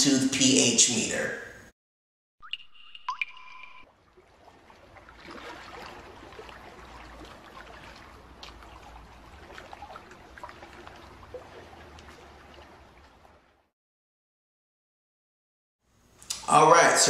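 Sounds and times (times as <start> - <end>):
water trickling and dripping: 2.4 - 13.7.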